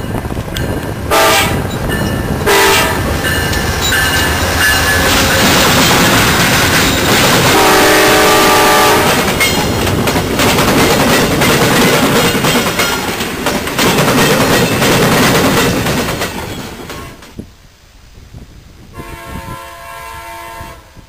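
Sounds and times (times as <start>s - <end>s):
wheels clicking over rail joints: 0.0s - 7.9s, 8.5s - 17.5s
train rushing past: 0.0s - 17.4s
train horn chord: 1.1s - 1.6s, 2.5s - 3.1s, 7.4s - 9.3s, 18.9s - 21.0s.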